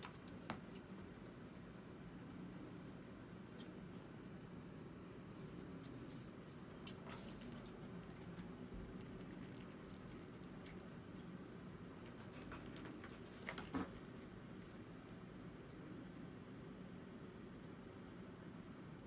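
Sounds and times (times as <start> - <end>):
low room hum: 0.0 - 19.0
cat toys jingling and clicking: 7.1 - 10.9, 12.1 - 14.8.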